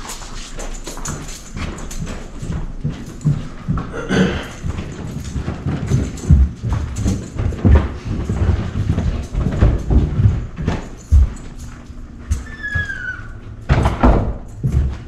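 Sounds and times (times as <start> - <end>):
footsteps going down stairs: 0.0 - 15.0.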